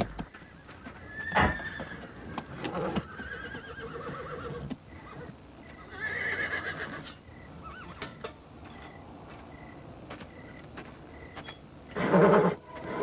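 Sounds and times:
horse whinnying: 1.1s - 8.1s, 11.9s - 13.0s.

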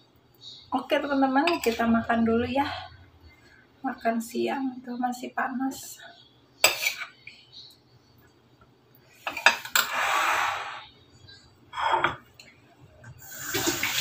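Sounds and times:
cutlery clinking on ceramic plates: 6.6s - 7.1s, 9.3s - 9.9s.

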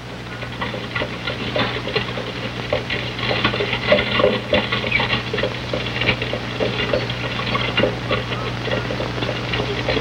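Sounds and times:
horses galloping: 0.2s - 10.0s.

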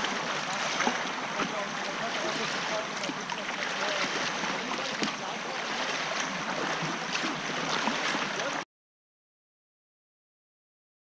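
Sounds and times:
water rushing around kayak: 0.0s - 8.6s.

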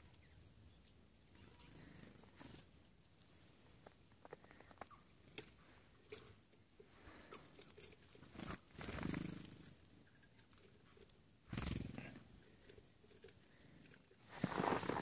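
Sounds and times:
bird wingbeats: 11.5s - 12.1s.

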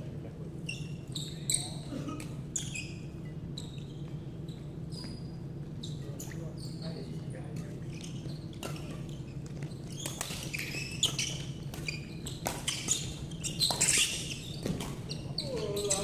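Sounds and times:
shoes squeaking on wooden floor: 7.9s - 16.0s
rackets striking shuttlecock: 10.0s - 15.0s.

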